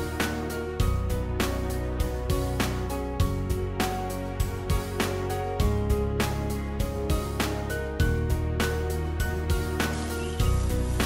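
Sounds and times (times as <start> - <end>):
light instrumental music: 0.0 - 11.0.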